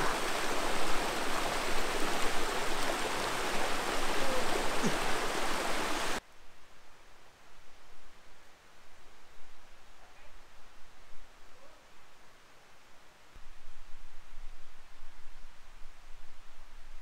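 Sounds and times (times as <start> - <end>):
forest stream flowing: 0.0 - 6.2.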